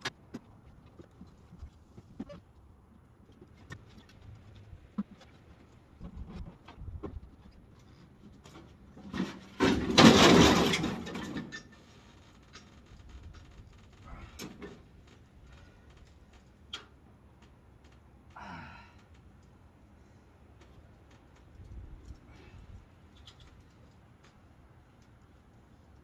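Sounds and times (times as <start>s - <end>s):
motorcycle crashing onto trailer: 9.0s - 11.8s.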